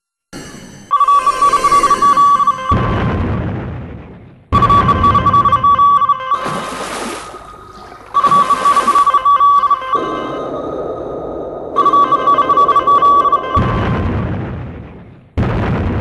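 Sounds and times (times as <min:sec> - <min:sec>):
shrill stuttering ringing tone: 0:00.4 - 0:02.9, 0:08.2 - 0:11.1, 0:11.7 - 0:13.8
low rumble: 0:09.9 - 0:16.0.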